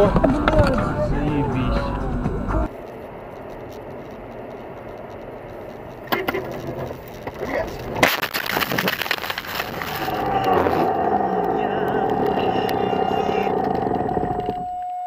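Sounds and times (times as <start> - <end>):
tyre road noise on snow: 0.0 - 15.0
car crash impact and crunching: 6.1 - 10.0.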